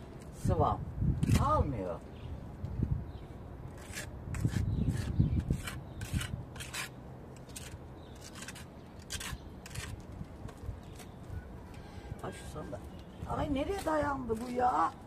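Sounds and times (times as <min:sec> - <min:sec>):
trowel scraping plaster on wall: 0:03.8 - 0:10.1.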